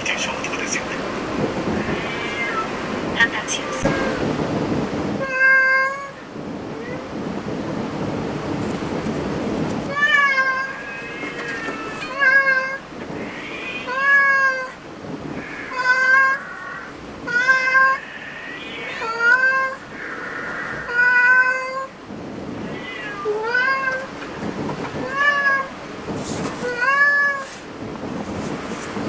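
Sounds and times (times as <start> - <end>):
cat meowing: 1.7 - 2.8, 3.6 - 4.2, 5.2 - 7.1, 9.9 - 21.9, 22.6 - 24.2, 26.6 - 27.6.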